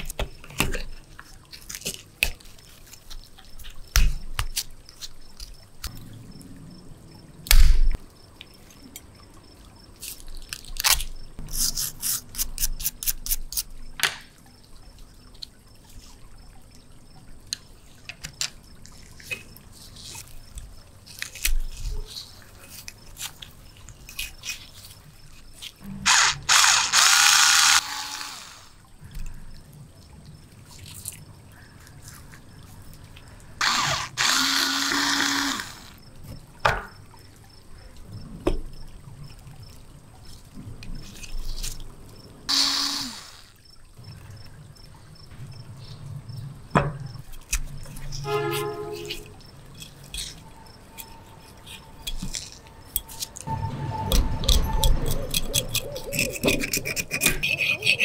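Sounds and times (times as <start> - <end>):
metal edge scraping corroded surface: 48.1 - 58.0
hand tools clicking on metal: 48.5 - 53.5, 54.2 - 58.0.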